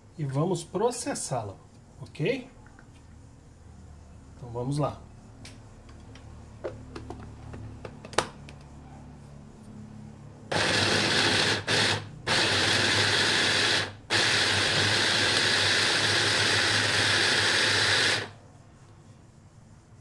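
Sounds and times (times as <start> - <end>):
electric food chopper running: 10.5 - 18.4.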